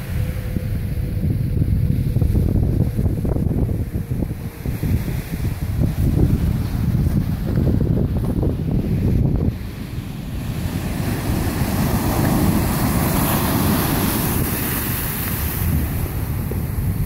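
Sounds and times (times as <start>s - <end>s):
wind rumbling on microphone: 0.0s - 17.0s
waves washing over pebbles: 4.4s - 17.0s.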